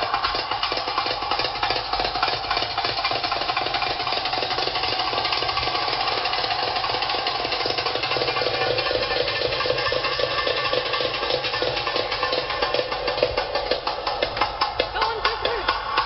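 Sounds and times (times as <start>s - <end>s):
belly-dance music with fast drumming: 11.6s - 16.0s.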